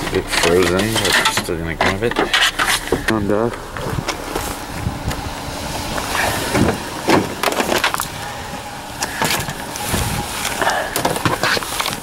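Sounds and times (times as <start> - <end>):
knocks and scrapes: 0.0 - 4.9, 9.0 - 12.0
handling rustling: 9.0 - 12.0.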